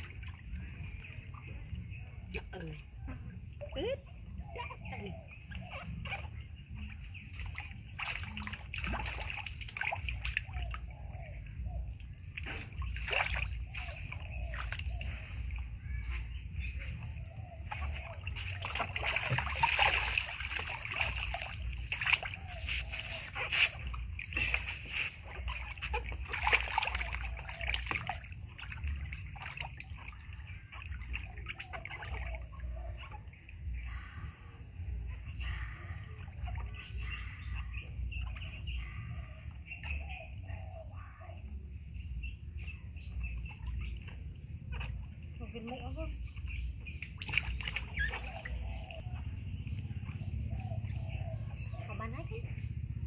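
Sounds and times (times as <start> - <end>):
water splashing in plastic tub: 0.0 - 4.0, 4.6 - 34.2, 43.2 - 51.0.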